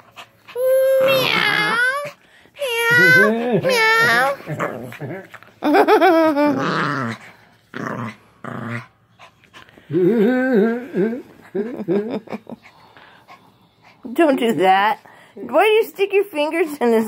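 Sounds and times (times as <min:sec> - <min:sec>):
puppy growling and whining: 0:00.5 - 0:05.4, 0:06.1 - 0:09.0, 0:09.8 - 0:11.8.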